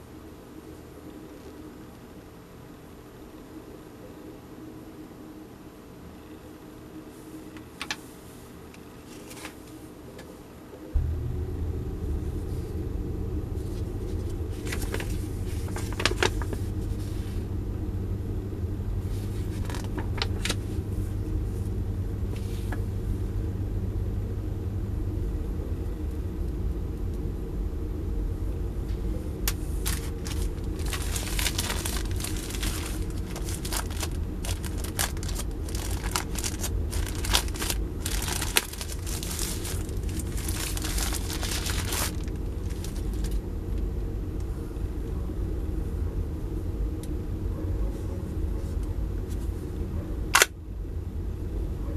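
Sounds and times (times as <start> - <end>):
steady low rumble: 10.9 - 51.9
plastic bag crinkling: 13.6 - 17.0, 19.2 - 20.7, 29.7 - 43.4
paper leaflet rustling: 13.6 - 17.4, 19.0 - 21.1, 29.5 - 43.4.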